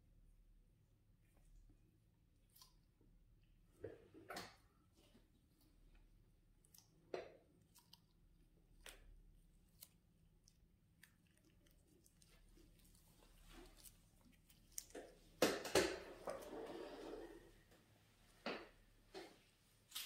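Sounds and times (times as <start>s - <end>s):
wet clicks and squishes of massage: 2.2s - 16.5s, 18.5s - 20.0s.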